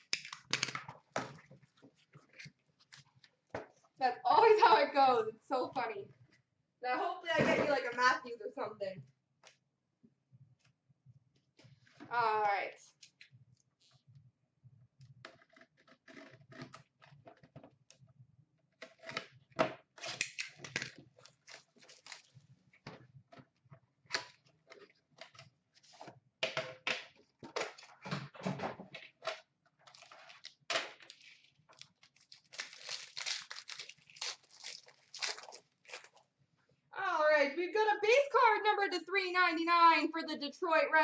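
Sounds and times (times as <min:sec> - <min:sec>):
plastic wrap crinkling: 0:20.1 - 0:22.5, 0:29.8 - 0:36.3
cardboard crunching: 0:31.1 - 0:36.2.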